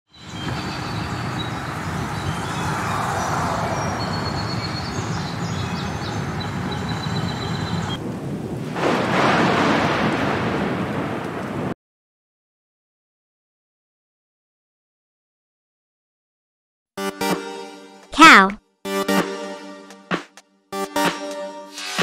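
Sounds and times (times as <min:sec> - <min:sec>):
birds chirping: 0:00.1 - 0:08.0
low vehicle engine hum: 0:00.3 - 0:08.0.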